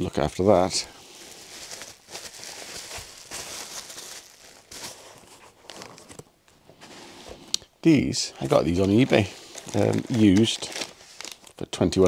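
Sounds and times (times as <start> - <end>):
bubble wrap crinkling: 0.2 - 6.2, 8.4 - 12.0.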